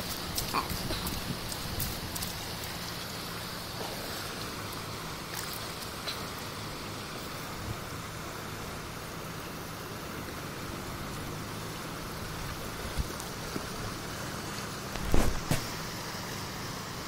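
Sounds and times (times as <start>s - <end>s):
swollen river rushing: 0.0s - 17.0s.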